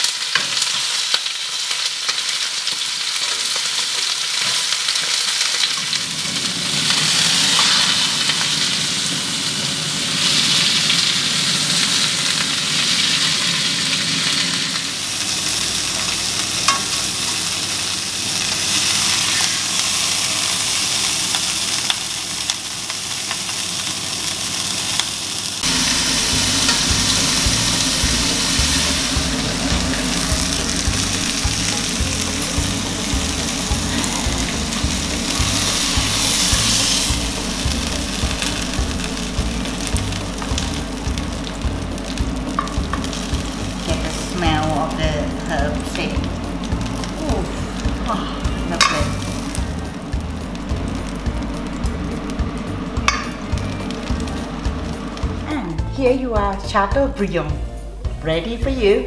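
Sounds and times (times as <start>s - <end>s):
meat sizzling in a frying pan: 0.0s - 56.7s
low hum: 25.6s - 58.4s.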